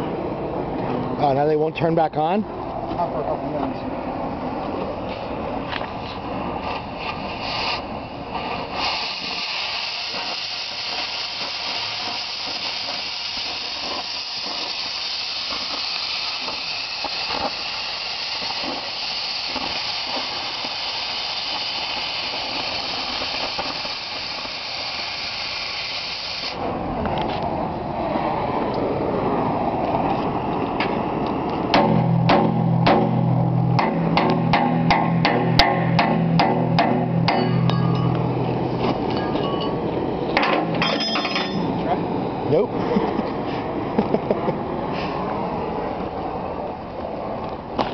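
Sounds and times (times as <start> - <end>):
cutting torch flame rushing: 3.9 - 40.9
loud high oxygen jet hiss: 6.2 - 26.7.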